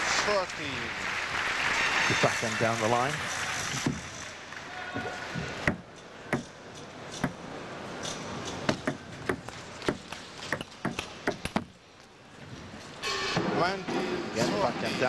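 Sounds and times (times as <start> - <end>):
table tennis ball knocking: 8.5 - 11.7.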